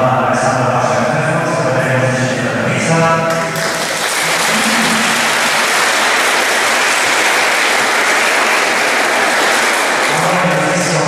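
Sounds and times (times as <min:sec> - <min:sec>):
crowd applauding: 0:03.3 - 0:11.0.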